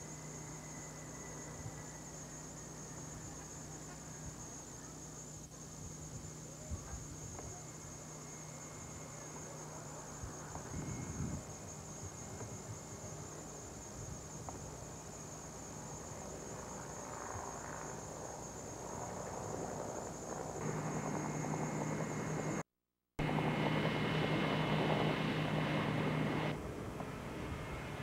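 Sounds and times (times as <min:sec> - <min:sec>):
steady low hum: 0:00.0 - 0:28.0
aircraft engine noise: 0:15.4 - 0:28.0.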